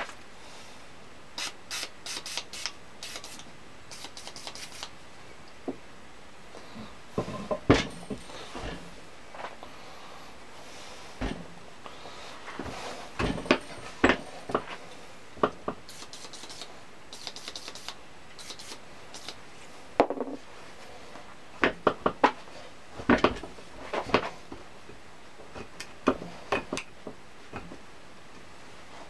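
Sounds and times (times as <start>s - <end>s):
metal knocks and clanks: 13.2s - 14.3s.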